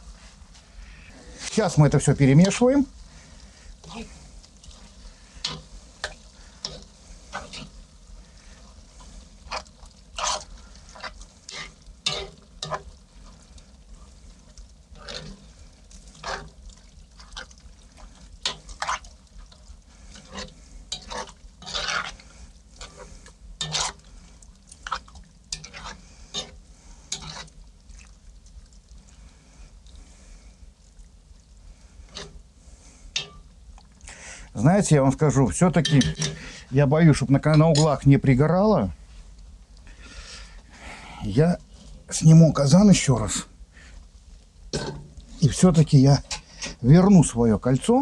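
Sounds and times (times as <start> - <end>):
spoon scraping and clinking pot: 9.5 - 12.9, 20.1 - 22.2, 22.8 - 24.0, 24.8 - 27.5, 33.2 - 33.5, 35.7 - 36.5, 37.4 - 38.0, 44.8 - 46.8.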